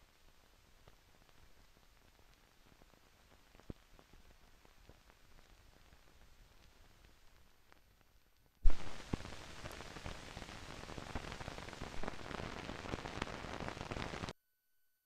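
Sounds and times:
film crackling with clicks: 0.8 - 14.3
loud pop: 8.6 - 9.3.

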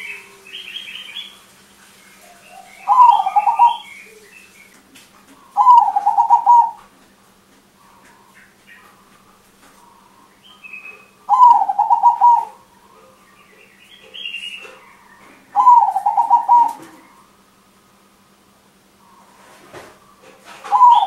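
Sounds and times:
dove cooing: 0.0 - 7.0, 7.8 - 13.2, 13.9 - 17.4, 20.2 - 21.0.

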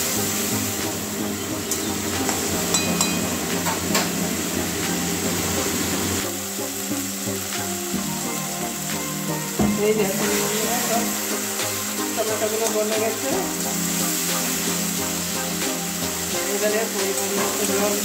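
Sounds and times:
background music: 0.0 - 18.0
gravy sizzling in pan: 0.0 - 18.0
spatula tapping pan: 1.6 - 4.2.

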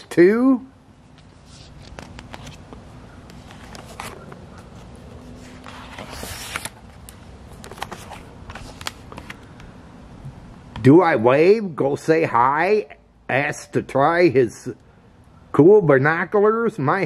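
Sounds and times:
paper rustling: 1.1 - 9.6
page turning swish: 1.2 - 9.4.

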